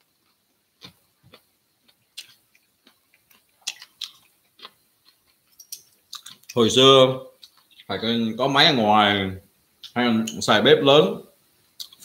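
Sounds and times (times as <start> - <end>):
man chewing with wet mouth smacks: 0.2 - 6.6, 7.4 - 7.9.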